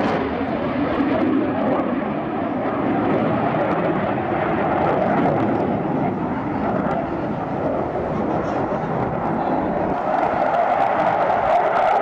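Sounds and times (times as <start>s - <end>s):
jet engines roaring in flight: 0.0s - 12.0s.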